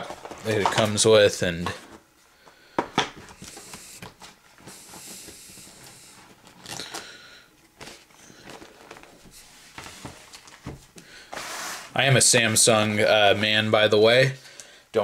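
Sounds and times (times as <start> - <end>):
paper rustling: 3.2 - 11.9.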